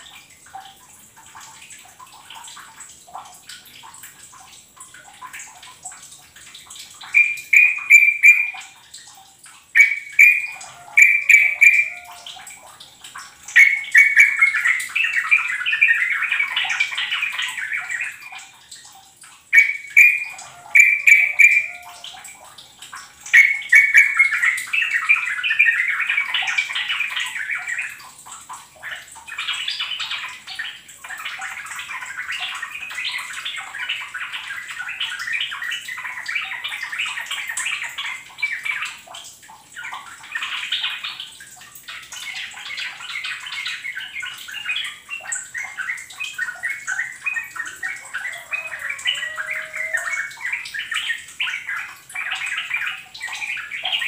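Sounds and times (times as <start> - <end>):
bulbul singing and chattering: 4.3 - 28.2, 41.9 - 54.0.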